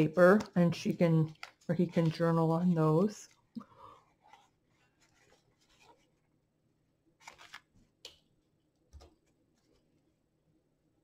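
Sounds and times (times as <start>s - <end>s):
paper pages rustling: 0.0s - 6.3s, 7.2s - 7.9s.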